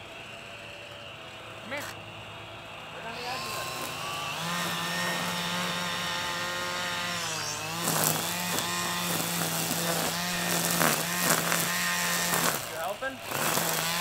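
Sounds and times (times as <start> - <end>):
string trimmer whining: 0.0 - 14.0
trimmer line ticking on grass: 7.8 - 14.0.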